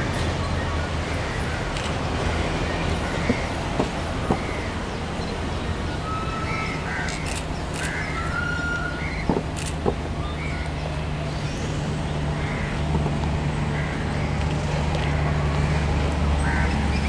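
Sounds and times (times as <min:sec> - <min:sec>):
crows cawing: 0:07.8 - 0:08.2, 0:12.4 - 0:12.8, 0:16.4 - 0:16.8.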